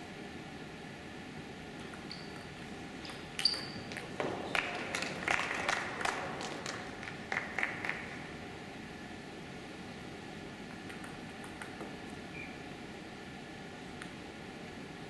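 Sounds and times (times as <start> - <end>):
table tennis ball clicking: 1.8 - 4.3, 10.7 - 12.0.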